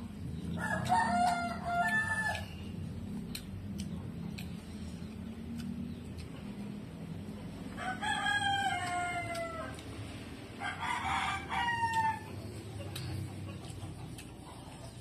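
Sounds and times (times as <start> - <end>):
rooster crowing: 0.6 - 2.6, 7.7 - 9.9, 10.6 - 12.4.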